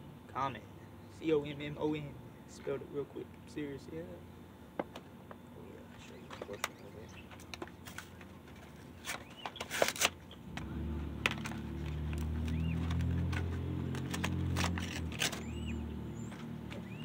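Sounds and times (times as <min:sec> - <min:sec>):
paper crinkling and clicks: 0:06.2 - 0:10.2, 0:11.2 - 0:15.5
low engine hum: 0:10.2 - 0:17.0.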